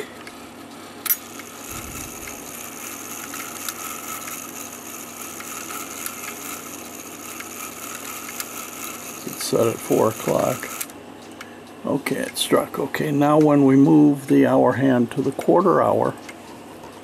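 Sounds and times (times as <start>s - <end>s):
steady hum: 0.0s - 17.0s
clock mechanism clicking: 1.1s - 10.9s.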